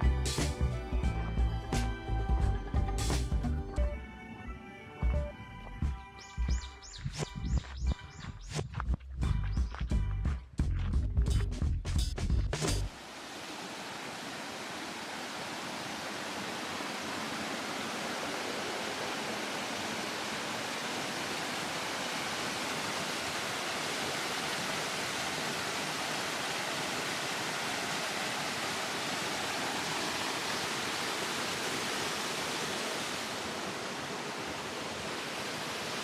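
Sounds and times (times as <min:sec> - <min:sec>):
rush of running water: 0:12.9 - 0:36.0.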